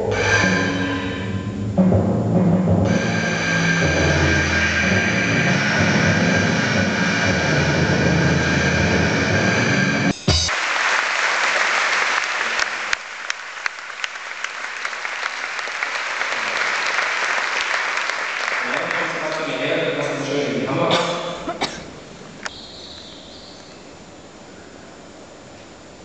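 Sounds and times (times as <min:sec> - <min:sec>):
music with deep drum hits: 0:00.0 - 0:10.5
large audience applauding: 0:10.5 - 0:20.2.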